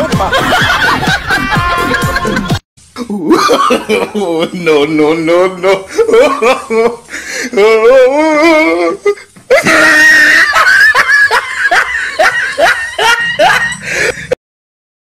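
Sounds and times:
person laughing hard: 0.0s - 4.8s, 5.4s - 14.4s.

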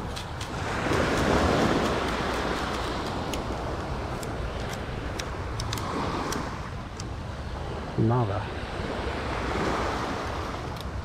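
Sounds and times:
beach surf: 0.0s - 11.0s
wind: 0.0s - 11.0s
light sharp clicks: 1.8s - 7.1s.

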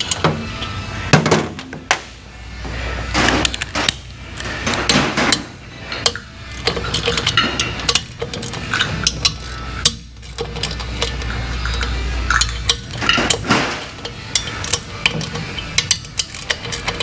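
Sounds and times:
metal tools clinking: 3.3s - 17.0s.

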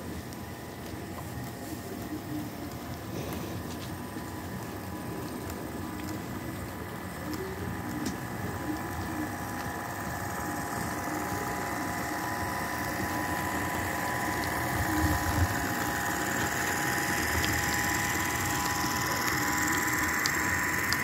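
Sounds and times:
wheels clicking on track: 0.0s - 21.0s
model train motor whine: 5.2s - 21.0s.

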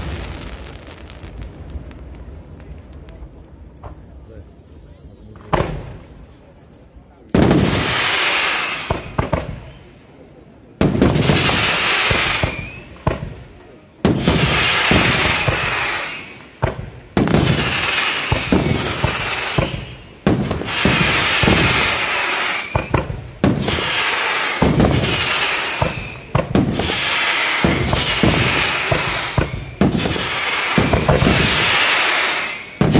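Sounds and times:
firework shells bursting: 14.1s - 32.9s.

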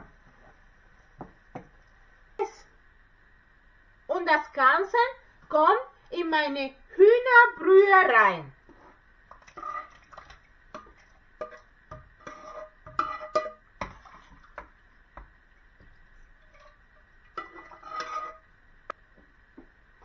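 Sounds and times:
spatula scraping a frying pan: 8.8s - 10.0s, 10.8s - 14.1s, 16.4s - 18.5s.

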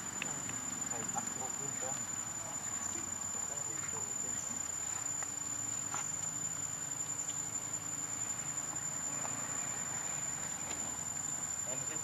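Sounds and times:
insects singing drone: 0.0s - 12.0s
faint ticks: 0.1s - 2.2s, 4.7s - 7.5s.

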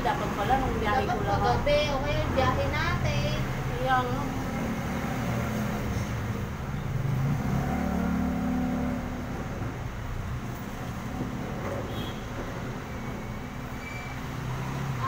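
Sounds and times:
passing cars: 0.0s - 15.0s
vehicle engine humming: 0.0s - 15.0s.

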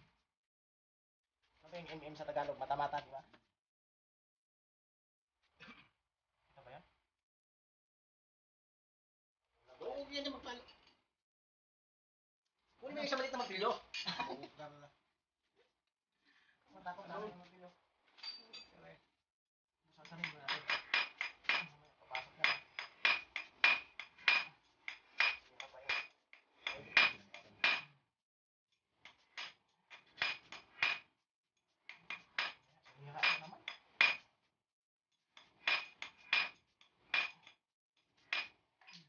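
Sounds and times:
hammer tapping steel punch: 20.1s - 27.9s, 35.6s - 36.6s.

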